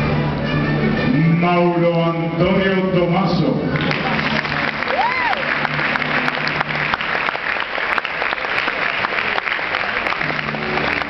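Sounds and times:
audience applauding: 0:03.8 - 0:11.0.

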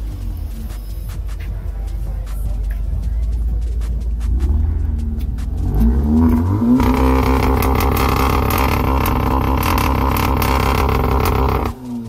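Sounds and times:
car engine revving: 0:04.0 - 0:12.0.

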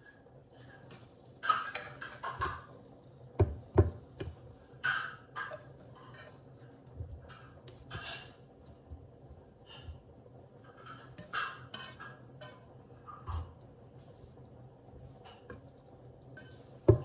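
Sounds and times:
fork scraping in frying pan: 0:00.6 - 0:02.7, 0:04.8 - 0:08.5, 0:10.6 - 0:13.6, 0:16.3 - 0:16.9.

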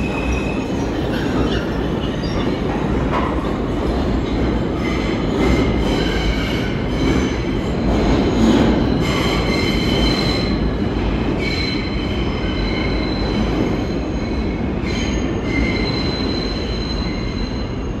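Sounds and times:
train wheels rumbling on rail: 0:00.0 - 0:18.0
high-pitched wheel squeal: 0:11.4 - 0:18.0.

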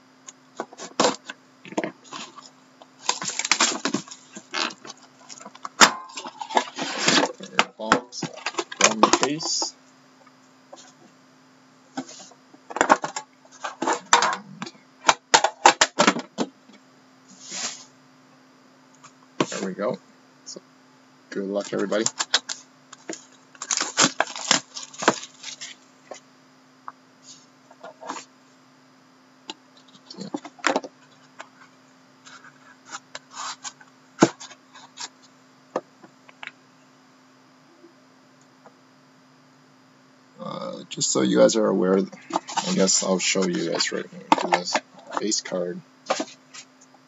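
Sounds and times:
faint steady hum: 0:00.0 - 0:47.0
cardboard packaging clicks and rustles: 0:00.6 - 0:09.7, 0:21.6 - 0:26.2, 0:46.0 - 0:46.7.

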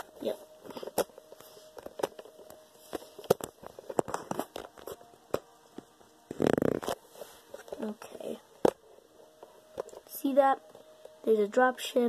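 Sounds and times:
phone handling clicks and taps: 0:00.8 - 0:05.9.

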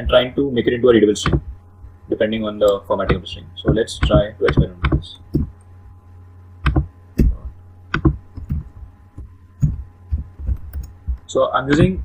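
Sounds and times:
steady low hum: 0:00.0 - 0:12.0
laptop keystrokes: 0:09.6 - 0:11.0.

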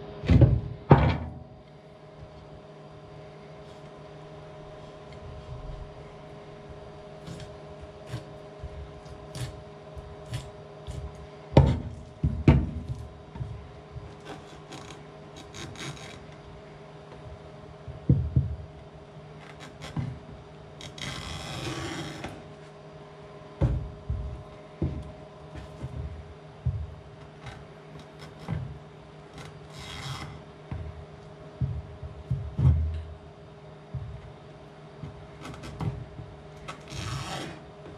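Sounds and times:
steady low hum: 0:00.0 - 0:37.9
knife scraping along fish: 0:36.9 - 0:37.6.

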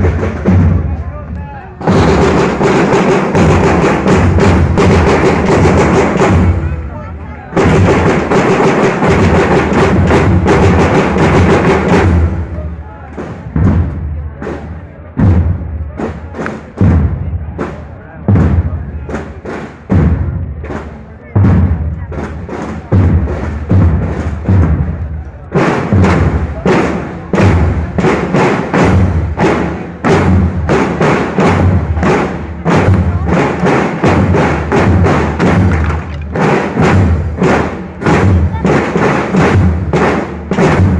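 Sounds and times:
snare marching drums: 0:00.0 - 0:01.1, 0:01.8 - 0:40.9
heavy booming drum beats: 0:00.0 - 0:40.9.

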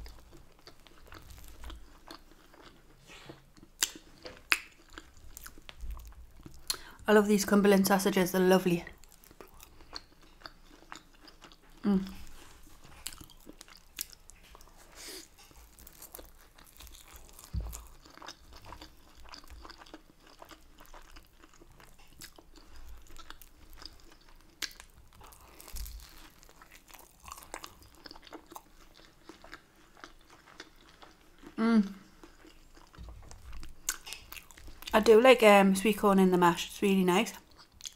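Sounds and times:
person chewing food: 0:00.0 - 0:07.0, 0:08.9 - 0:35.0, 0:37.4 - 0:37.9.

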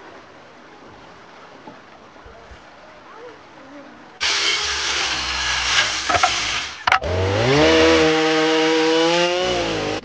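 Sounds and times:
chainsaw revving: 0:04.2 - 0:10.0.

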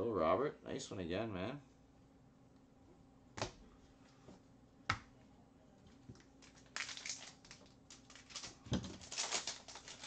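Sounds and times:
foil wrapper crinkling: 0:06.1 - 0:10.0.

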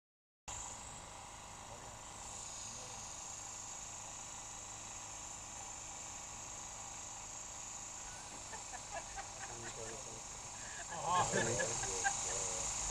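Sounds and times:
insects chirring: 0:00.5 - 0:12.9.

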